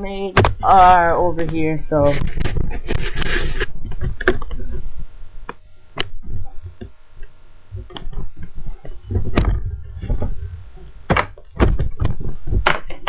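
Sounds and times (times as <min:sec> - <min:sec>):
camera handling rumble: 0:02.0 - 0:04.9, 0:07.8 - 0:13.0.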